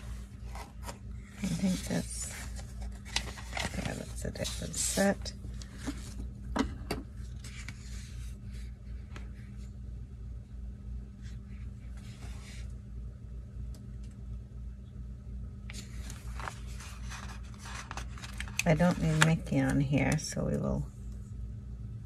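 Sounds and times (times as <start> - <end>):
paper rustling and handling: 0.0 - 6.3, 7.2 - 9.7, 15.7 - 20.2
low background hum: 0.0 - 22.0.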